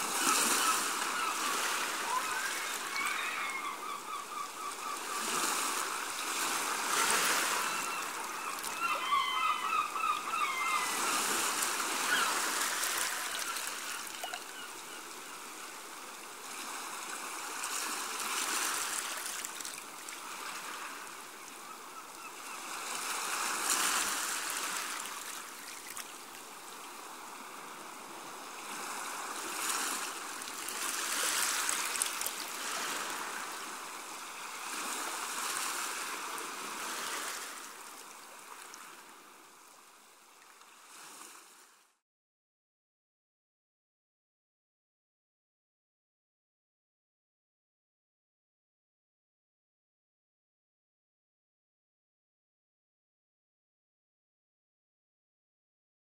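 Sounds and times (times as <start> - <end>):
small waves washing onto beach: 0.0 - 41.9.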